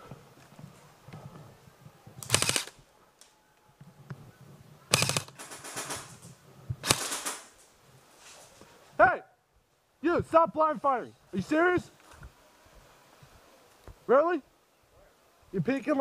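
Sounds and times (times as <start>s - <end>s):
airsoft rifle bursts: 2.2s - 2.8s, 4.9s - 6.1s, 6.8s - 7.6s.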